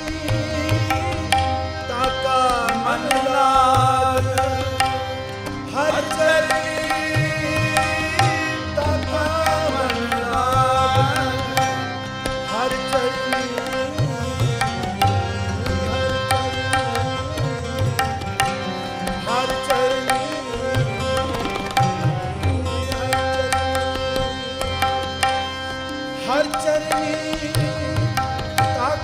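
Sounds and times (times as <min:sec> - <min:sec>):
harmonium melody: 0:00.0 - 0:29.0
tabla strokes: 0:00.0 - 0:29.0.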